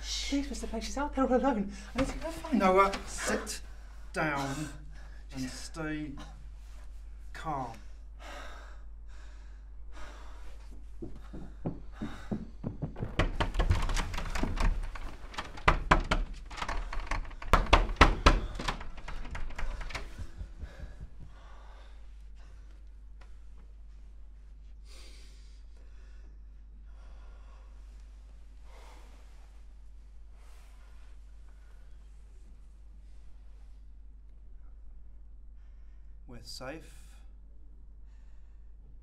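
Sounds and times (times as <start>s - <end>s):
door banging and rattling: 1.9s - 3.4s, 11.3s - 21.2s
faint breaths: 3.6s - 12.6s, 18.2s - 34.0s, 35.5s - 36.3s, 38.0s - 39.0s.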